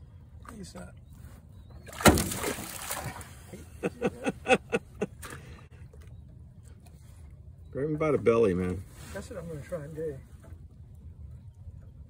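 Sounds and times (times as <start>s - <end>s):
fish splashing: 1.9s - 3.2s
fish slapping water: 1.9s - 3.4s.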